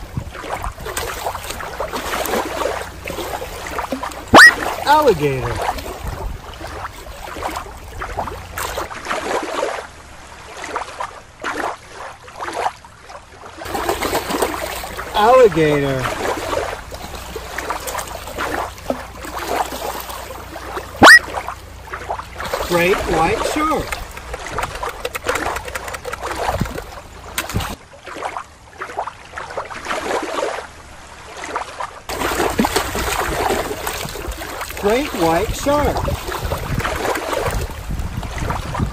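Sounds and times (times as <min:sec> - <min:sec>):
water lapping and sloshing: 0:00.0 - 0:38.9
toy splashing into water: 0:00.8 - 0:06.0, 0:20.7 - 0:27.8, 0:32.1 - 0:37.7.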